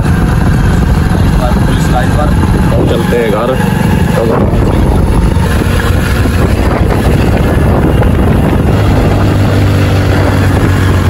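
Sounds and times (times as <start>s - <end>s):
motorcycle engine running: 0.0s - 11.0s
wind rushing over microphone: 3.8s - 11.0s.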